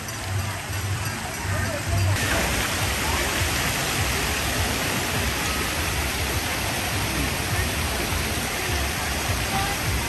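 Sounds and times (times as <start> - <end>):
faint voices: 0.0 - 10.0
water pouring into splash pool: 0.0 - 10.0.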